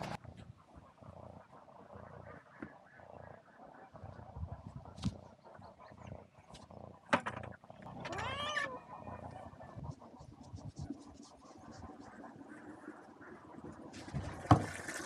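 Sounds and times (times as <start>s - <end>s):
cat meowing: 8.0s - 9.2s.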